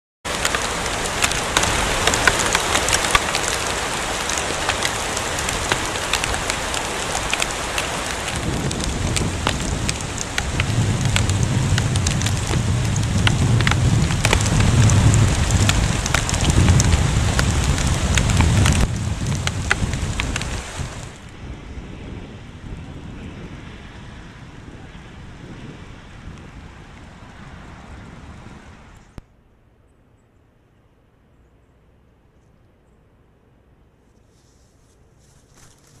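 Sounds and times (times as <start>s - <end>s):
hailstones striking clicks: 0.3s - 21.2s
hail and rain hissing: 0.3s - 21.3s
low rumble: 0.6s - 25.1s.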